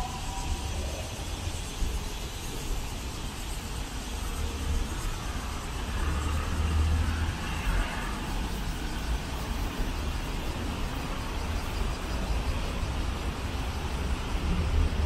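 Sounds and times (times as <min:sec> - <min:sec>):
traffic rumble: 0:04.0 - 0:15.0.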